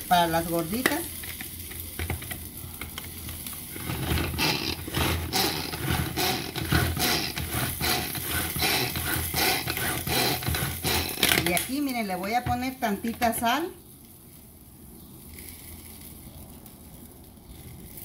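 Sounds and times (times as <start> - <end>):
blades whirring through vegetables: 3.7 - 11.6.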